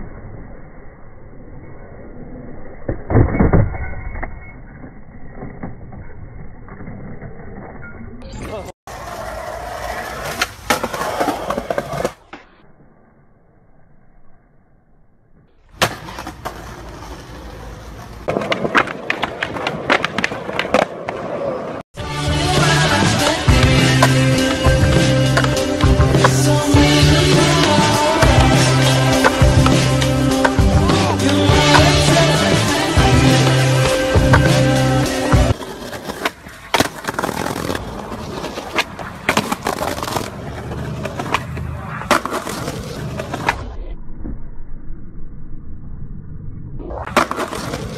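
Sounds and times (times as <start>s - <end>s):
skateboard wheels rolling on concrete: 0.0s - 13.0s, 15.4s - 44.4s, 46.8s - 47.9s
skateboard pops and clacks: 15.7s - 16.8s, 18.2s - 21.4s, 35.5s - 43.6s, 47.0s - 47.9s
skateboard clacks and knocks: 15.8s - 21.5s.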